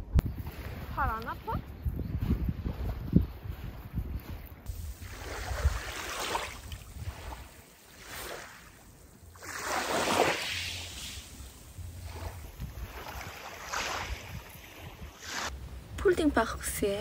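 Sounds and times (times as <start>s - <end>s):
wind rumble on microphone: 0.0s - 9.6s, 10.6s - 17.0s
small waves on pebbly beach: 4.7s - 15.5s.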